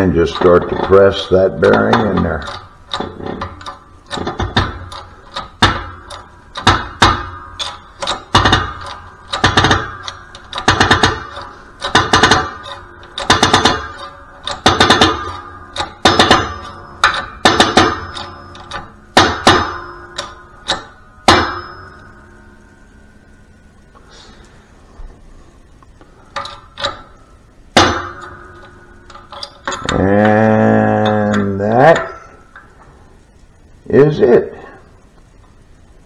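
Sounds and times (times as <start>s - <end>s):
shop press metallic clacking: 0.0s - 22.6s, 26.3s - 32.7s.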